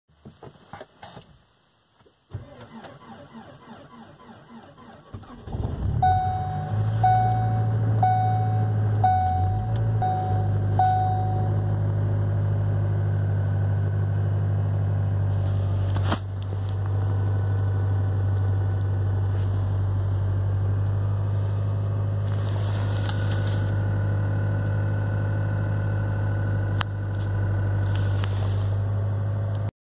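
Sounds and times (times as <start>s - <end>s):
car engine cranking and idling: 2.3s - 29.7s
car chime: 6.0s - 11.7s.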